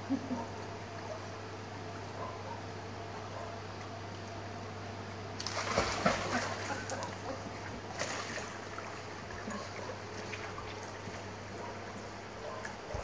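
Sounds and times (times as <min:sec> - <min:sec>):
steady low hum: 0:00.0 - 0:13.0
dog splashing into water: 0:05.4 - 0:07.0.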